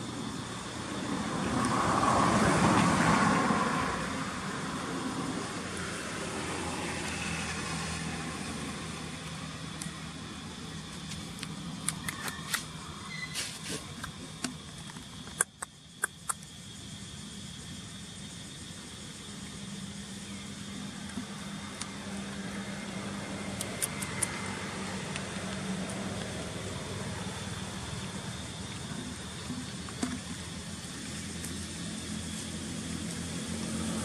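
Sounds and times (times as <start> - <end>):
outdoor hum: 0.0 - 34.0
vehicle passing by: 0.3 - 10.8, 19.6 - 34.0
sharp clicks: 14.0 - 16.5, 23.5 - 24.4.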